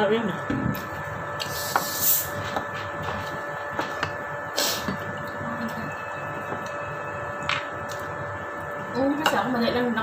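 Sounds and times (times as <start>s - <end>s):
room hum with tones: 0.0s - 10.0s.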